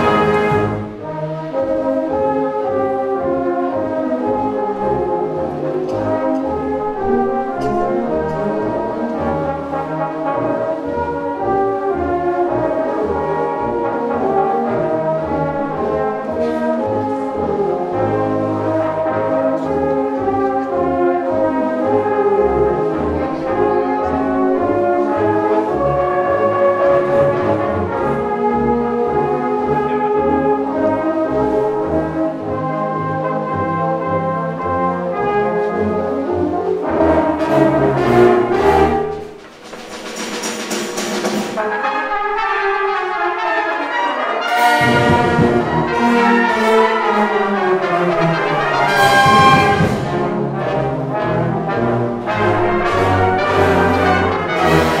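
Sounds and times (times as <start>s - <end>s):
brass band playing: 0.0s - 55.0s
tubas playing bass line: 0.0s - 55.0s.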